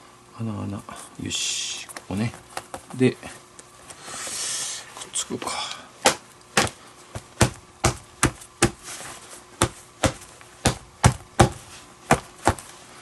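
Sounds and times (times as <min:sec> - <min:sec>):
hand slapping leather glove: 0:06.0 - 0:09.0, 0:09.6 - 0:12.7.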